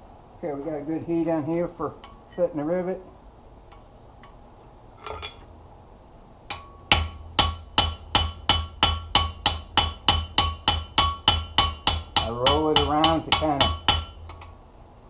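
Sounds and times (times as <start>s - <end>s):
hammer striking anvil: 5.0s - 5.7s, 6.5s - 14.6s.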